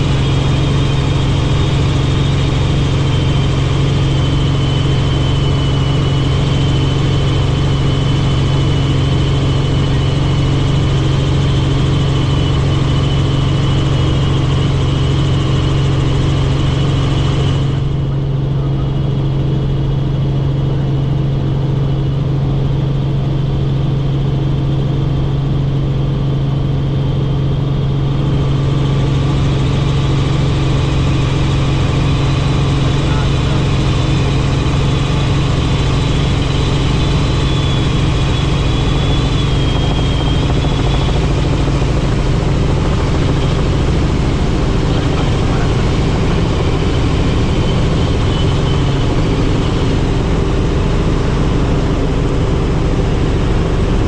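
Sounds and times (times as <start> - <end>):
helicopter rotor drone: 0.0 - 54.0
high-pitched whine: 0.0 - 54.0.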